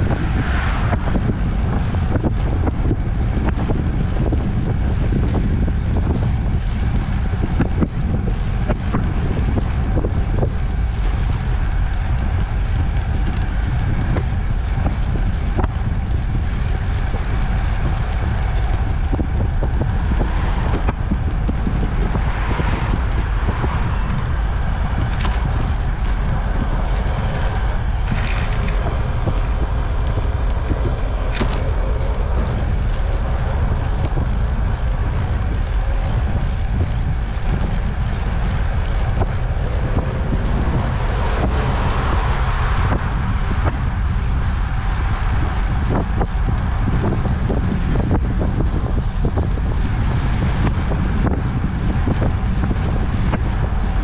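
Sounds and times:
trike rolling on asphalt: 0.0s - 54.0s
wind buffeting microphone: 0.0s - 54.0s.

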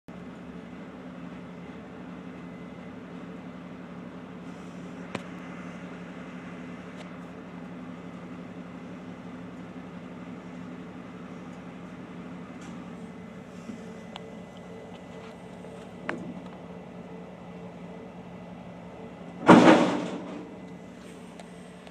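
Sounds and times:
diesel engine running: 0.1s - 21.9s.

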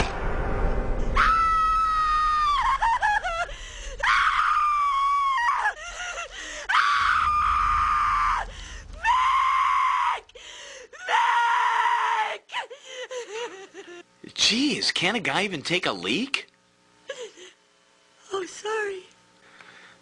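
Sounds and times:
people screaming in terror: 1.2s - 10.4s, 11.0s - 12.5s.

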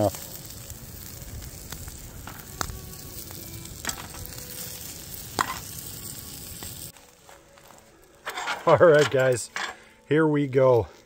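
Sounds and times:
omelette sizzling in a pan: 0.0s - 8.8s.

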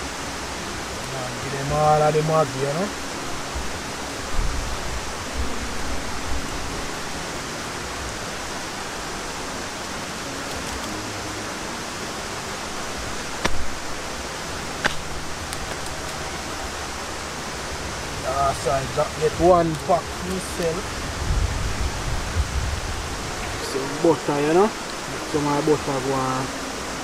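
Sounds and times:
rushing hiss outdoors: 0.0s - 27.0s.

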